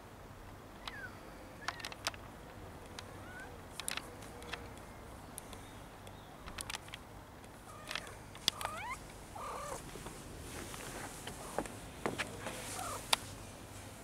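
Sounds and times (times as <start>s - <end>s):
sharp clicks: 1.6s - 3.1s, 3.7s - 4.8s, 5.4s - 8.8s
cat chirping and trilling: 3.2s - 3.5s, 7.7s - 9.8s, 12.7s - 13.1s.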